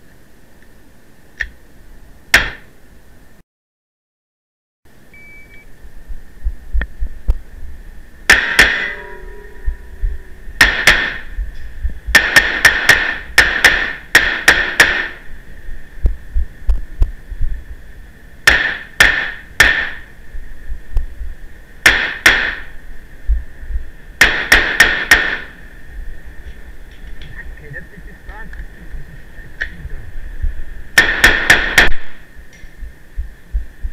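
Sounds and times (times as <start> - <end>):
short beep: 5.1 - 5.7
gunshots echoing: 8.3 - 9.2, 10.6 - 11.3, 12.1 - 15.2, 18.5 - 20.0, 24.2 - 25.6, 31.0 - 32.2.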